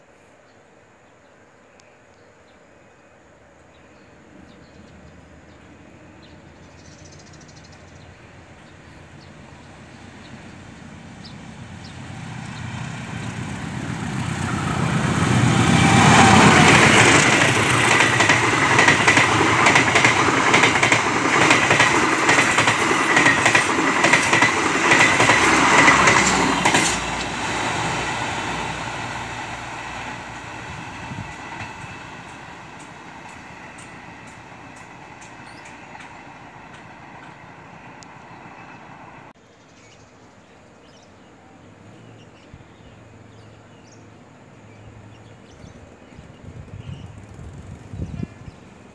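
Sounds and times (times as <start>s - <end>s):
train wheels clattering on rails: 13.8s - 28.5s, 30.9s - 38.6s.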